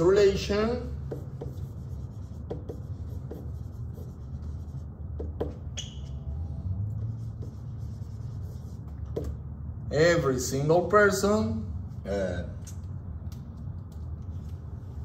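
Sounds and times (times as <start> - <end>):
marker writing on whiteboard: 0.0 - 9.5
marker squeak: 5.4 - 6.6.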